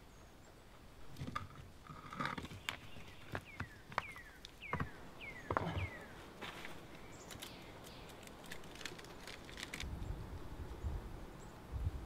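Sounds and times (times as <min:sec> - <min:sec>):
stones knocking and scraping: 0:01.1 - 0:07.5
steps on loose gravel: 0:05.6 - 0:09.9.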